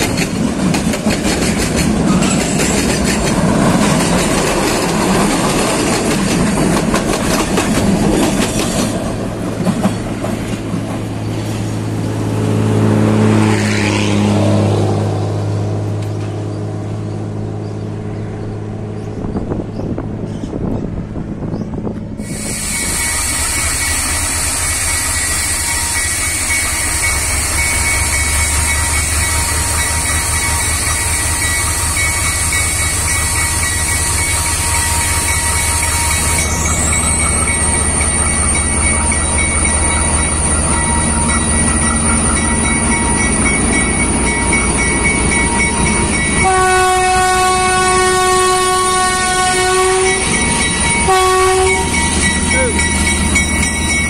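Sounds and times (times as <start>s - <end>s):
diesel locomotive idling: 0.0s - 13.0s, 15.7s - 54.0s
high whine: 21.2s - 54.0s
locomotive air horn: 46.4s - 50.4s, 51.0s - 52.8s.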